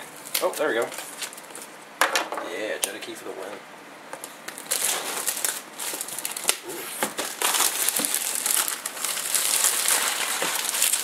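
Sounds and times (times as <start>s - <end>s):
plastic wrap crinkling: 4.2s - 11.0s.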